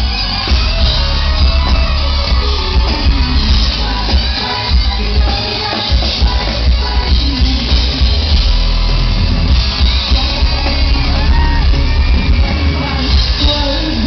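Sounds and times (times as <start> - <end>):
people singing: 0.0 - 8.9, 9.6 - 14.0
loud live pop music: 0.0 - 14.0
people shouting: 9.8 - 13.1.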